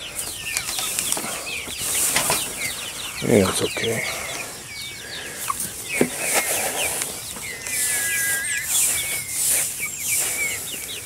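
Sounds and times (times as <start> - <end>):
chicks peeping: 0.0 - 11.0
rice hulls rustling: 0.1 - 2.9, 5.1 - 11.0.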